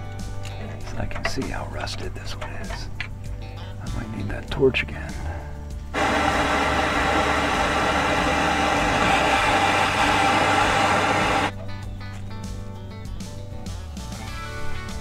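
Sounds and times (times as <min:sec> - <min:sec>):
propane torch hissing: 0:05.8 - 0:11.6.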